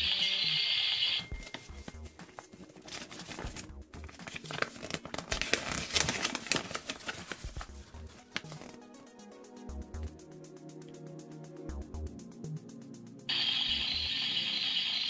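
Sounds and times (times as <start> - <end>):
paper crinkling and rustling: 1.4 - 8.8.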